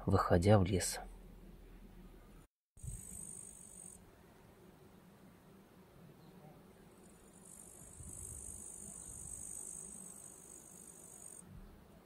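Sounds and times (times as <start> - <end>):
insect high-pitched trill: 2.8 - 4.0, 7.0 - 11.5.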